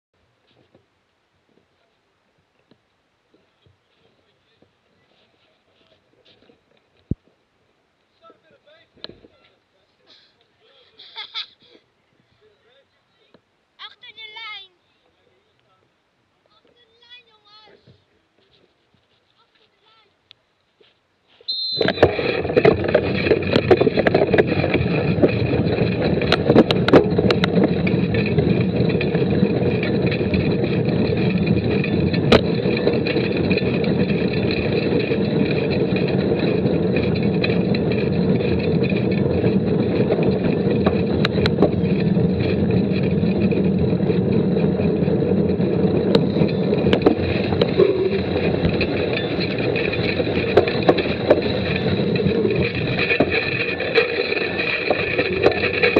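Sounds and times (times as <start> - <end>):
bike clicks and knocks: 21.8 - 55.9.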